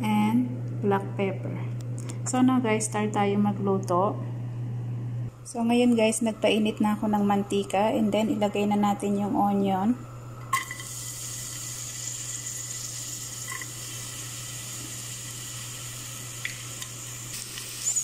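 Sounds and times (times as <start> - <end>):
onion sizzling in hot oil: 10.5 - 18.0.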